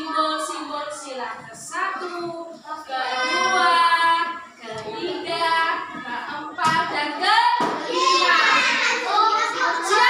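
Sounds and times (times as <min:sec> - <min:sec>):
children singing: 0:02.8 - 0:06.6, 0:07.8 - 0:10.0.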